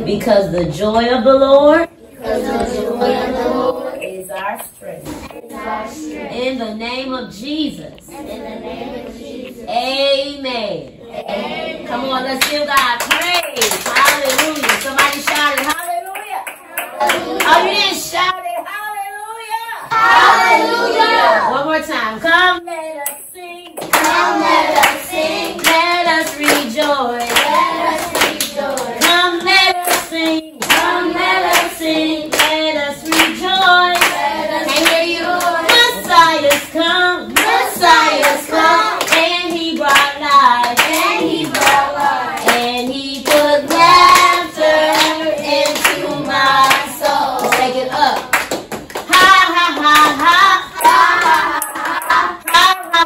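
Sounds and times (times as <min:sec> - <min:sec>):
hands clapping in a beat: 0:12.4 - 0:17.6, 0:23.0 - 0:36.7, 0:37.3 - 0:53.0
children and woman singing: 0:16.8 - 0:21.5, 0:22.2 - 0:53.0.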